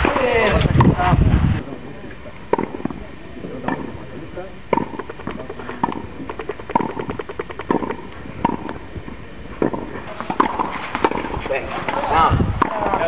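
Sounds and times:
tennis racket striking balls: 0:02.5 - 0:03.0, 0:03.6 - 0:04.0, 0:04.7 - 0:08.8, 0:09.6 - 0:13.0.

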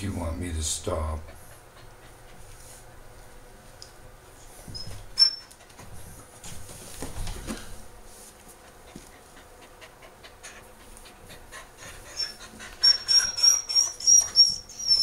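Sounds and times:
dog panting and whimpering: 0:01.2 - 0:02.6, 0:08.6 - 0:15.0.

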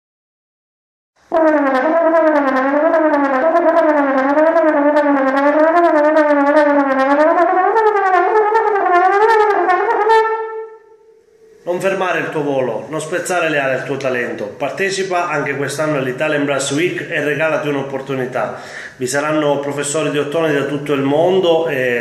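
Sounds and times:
solo trombone melody: 0:01.3 - 0:11.8.

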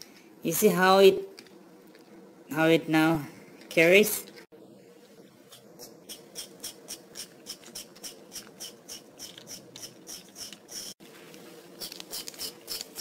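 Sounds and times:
toy train wheels clicking on mat: 0:06.1 - 0:11.0, 0:11.8 - 0:13.0.

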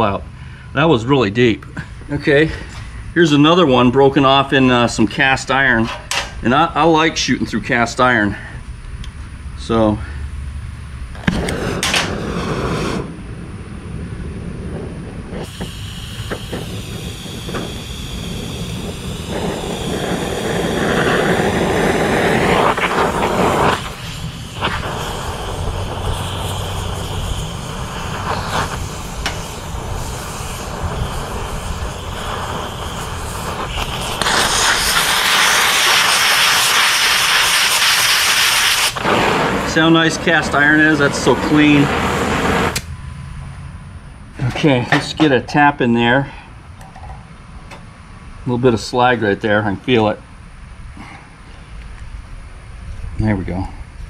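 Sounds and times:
cutting torch flame hissing: 0:00.0 - 0:42.9
cutting oxygen jet blowing: 0:11.2 - 0:13.3, 0:14.3 - 0:42.9.

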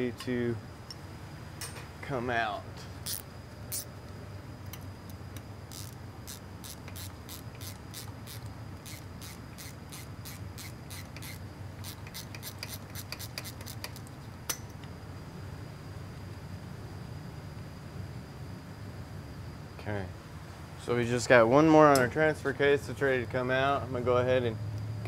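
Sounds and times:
hand ratchet clicking: 0:03.1 - 0:03.9, 0:05.7 - 0:14.6.

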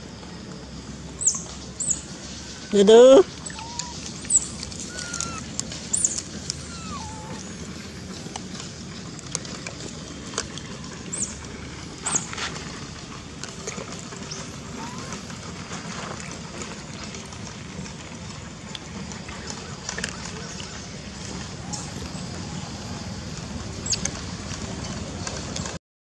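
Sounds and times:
squeaky glides: 0:02.3 - 0:08.9, 0:14.2 - 0:15.8
high animal chirps: 0:02.6 - 0:07.6.

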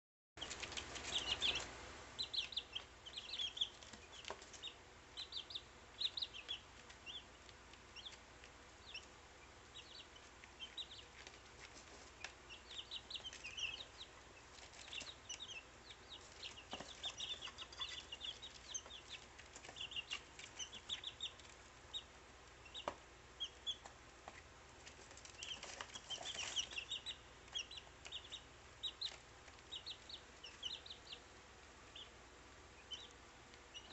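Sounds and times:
chicks peeping: 0:00.4 - 0:33.9.

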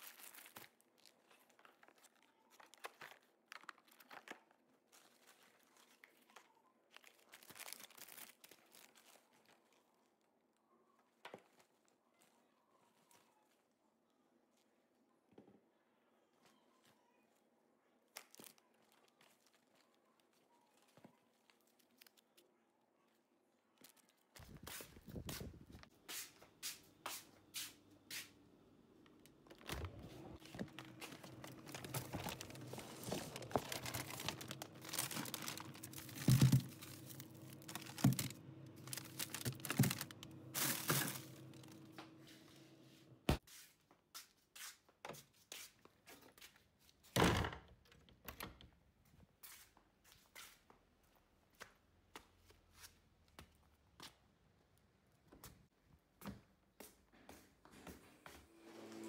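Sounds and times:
plastic bags crinkling: 0:00.0 - 0:09.9, 0:18.1 - 0:22.4, 0:29.2 - 0:41.9.

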